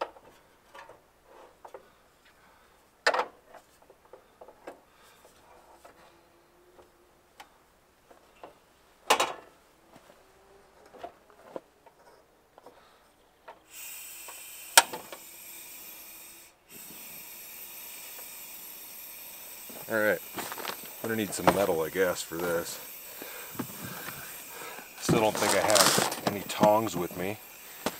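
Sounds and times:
gas burner hissing: 13.6s - 27.9s.

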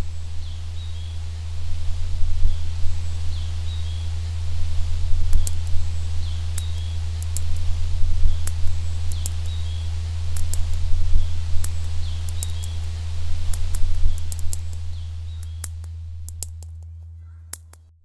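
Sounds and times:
low drone: 0.0s - 18.0s
sharp clicks: 5.3s - 5.8s, 6.5s - 7.7s, 8.3s - 9.7s, 10.3s - 10.9s, 11.5s - 17.9s.

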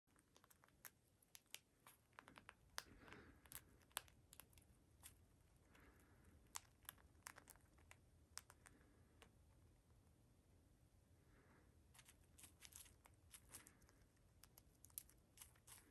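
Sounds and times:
bird cracking seeds with beak: 12.0s - 15.9s.

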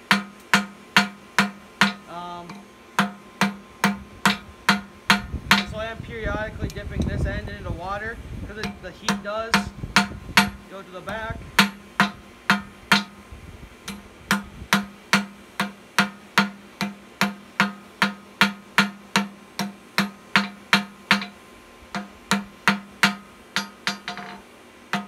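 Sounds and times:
hammer striking steel on anvil: 0.0s - 5.8s, 8.6s - 13.2s, 13.9s - 25.0s.

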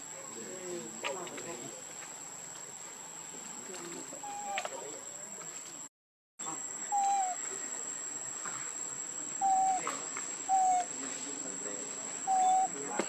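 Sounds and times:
high-pitched insect trill: 6.4s - 12.9s
short whistle-like calls: 10.5s - 10.9s.

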